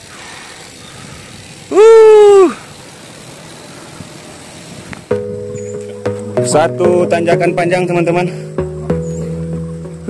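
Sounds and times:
road noise: 0:00.0 - 0:10.0
wind: 0:00.0 - 0:10.0.

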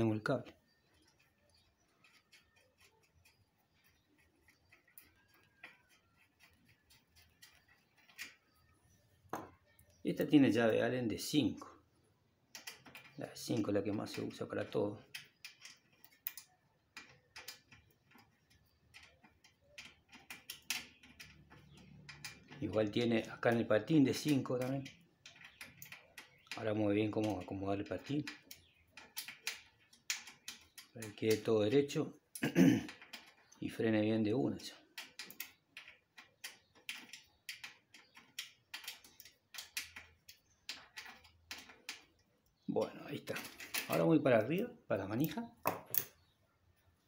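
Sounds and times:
allen key metallic clicks: 0:15.0 - 0:33.6, 0:34.8 - 0:44.6.

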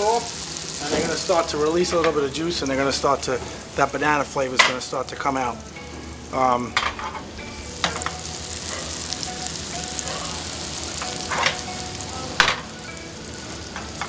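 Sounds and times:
banana slices sizzling in butter: 0:00.0 - 0:14.0.

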